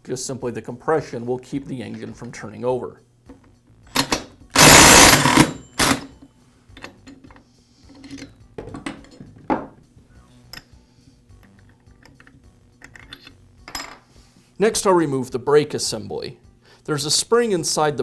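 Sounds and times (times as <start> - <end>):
impact driver hammering: 4.0 - 6.0
light metallic clicks and rattles: 11.4 - 13.4.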